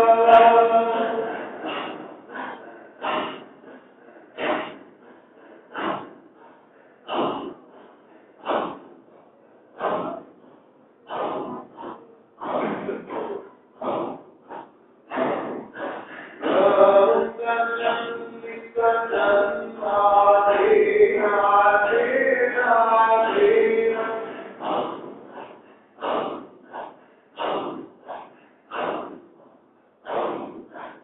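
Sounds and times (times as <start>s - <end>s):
melodic male chant: 0.0s - 2.4s, 15.7s - 25.2s
men's breathy rhythmic chanting: 0.0s - 31.0s.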